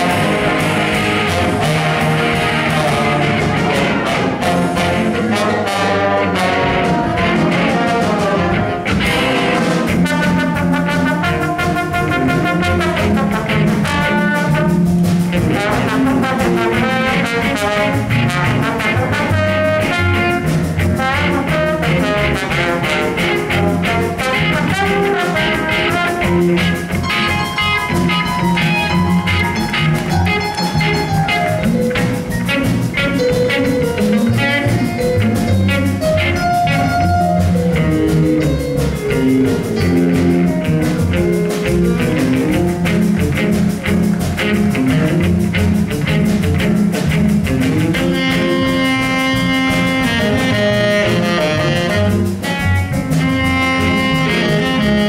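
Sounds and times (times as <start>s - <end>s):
trombone solo: 0.0s - 31.0s, 47.5s - 55.0s
jazz band playing: 0.0s - 55.0s.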